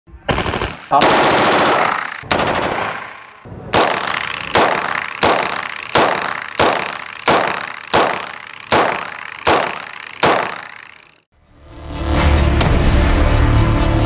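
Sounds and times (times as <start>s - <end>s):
gunshots echoing: 0.3s - 10.9s.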